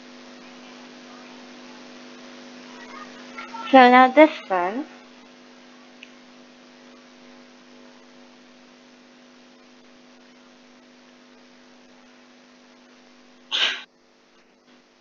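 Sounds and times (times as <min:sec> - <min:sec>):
low electrical hum: 0:00.0 - 0:15.0
person breath burst: 0:13.5 - 0:13.9.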